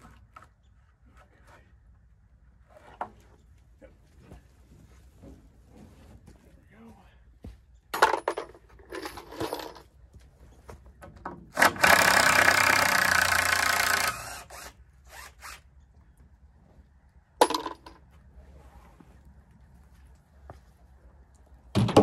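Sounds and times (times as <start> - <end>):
cordless drill running: 11.6 - 15.6.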